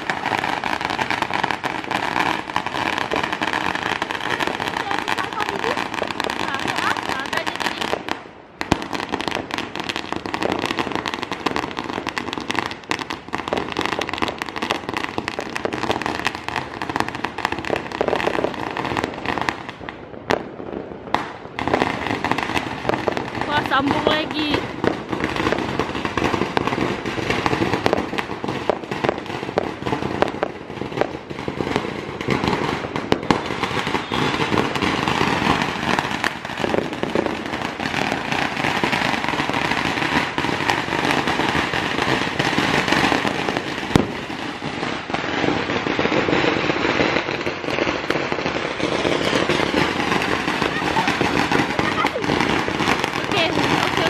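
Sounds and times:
fireworks bangs and crackling: 0.0s - 54.0s
loud firework bang: 20.3s - 54.0s.

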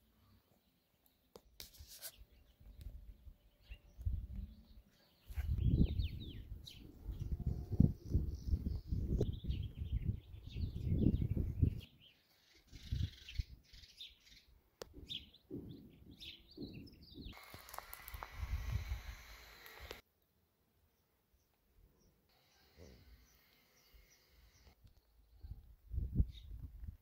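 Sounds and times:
small birds chirping: 0.2s - 20.0s, 20.9s - 26.9s
wind gusts on microphone: 5.3s - 11.9s, 25.4s - 27.0s.

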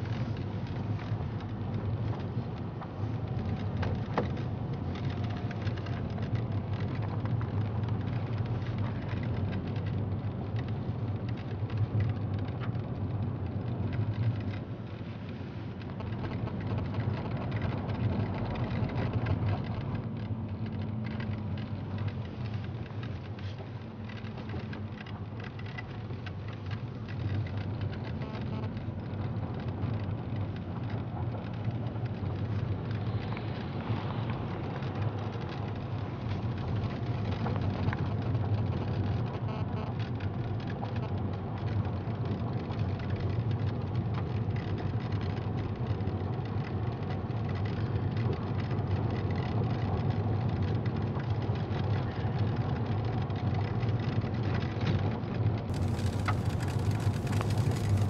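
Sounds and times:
car engine and tyre rumble: 0.0s - 58.0s
tyres crackling on rough road: 0.0s - 58.0s.

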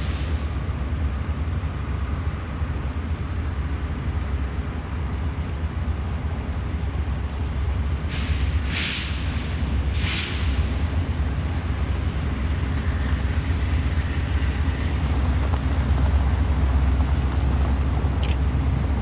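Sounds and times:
distant freight train rumble: 0.0s - 19.0s
faint high whine: 0.0s - 19.0s
short sharp hisses: 8.1s - 10.8s.

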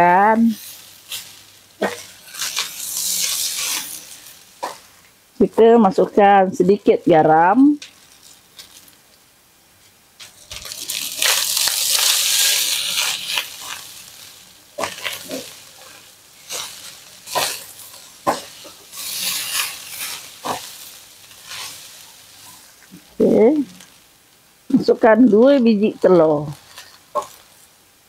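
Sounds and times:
rice sizzling in a wok: 0.0s - 28.0s
spatulas scraping a pan: 0.5s - 5.0s, 10.2s - 23.0s, 26.5s - 27.7s.

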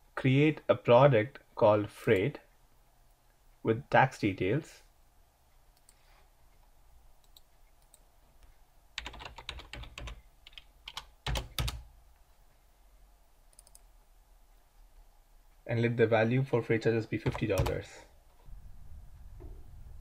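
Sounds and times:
typing on computer keyboard: 9.0s - 11.9s.

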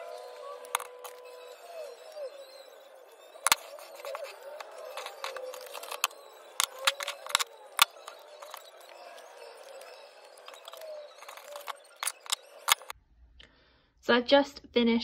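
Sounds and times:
scissors snipping paper: 3.4s - 12.9s.

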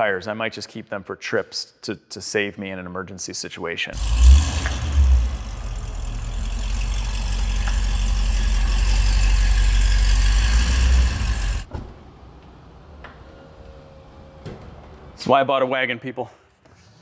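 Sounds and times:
car engine rumbling: 4.0s - 11.7s.

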